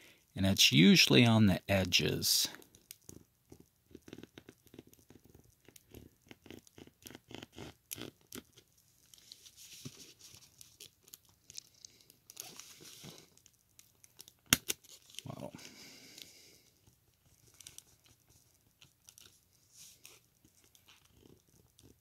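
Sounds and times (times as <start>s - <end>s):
soft rubbing: 9.0s - 11.0s.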